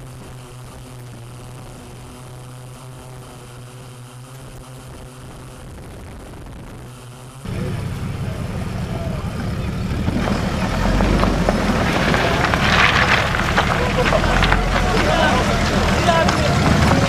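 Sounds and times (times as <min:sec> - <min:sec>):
drone propellers humming: 0:00.0 - 0:17.0
truck engine climbing: 0:06.9 - 0:17.0.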